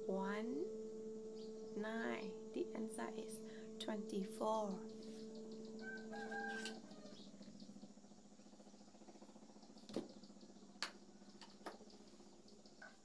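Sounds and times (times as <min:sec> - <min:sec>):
faint bird call: 0:04.8 - 0:07.8.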